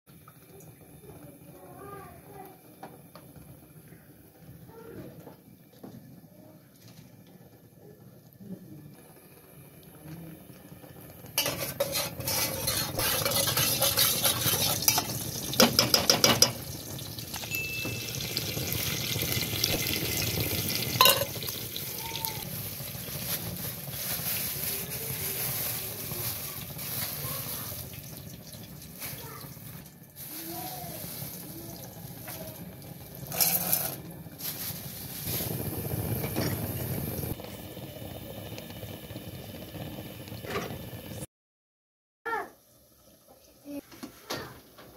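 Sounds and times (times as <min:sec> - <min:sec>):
metal spoon scraping steel pot: 0:11.4 - 0:16.6, 0:33.3 - 0:34.0
popcorn kernels rattling: 0:11.4 - 0:18.7, 0:19.3 - 0:28.3, 0:29.0 - 0:36.3
plastic bag rustling: 0:22.4 - 0:28.1, 0:30.2 - 0:32.6, 0:33.2 - 0:36.5.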